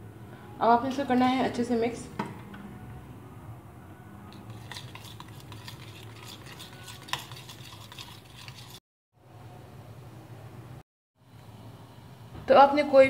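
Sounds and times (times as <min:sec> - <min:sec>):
metal spoon clinking in steel bowl: 0:04.5 - 0:08.8.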